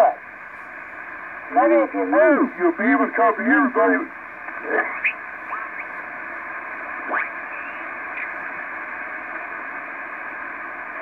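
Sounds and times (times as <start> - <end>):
radio band noise hiss: 0.0 - 11.0
radio signal whistles: 4.5 - 6.2, 6.8 - 8.7.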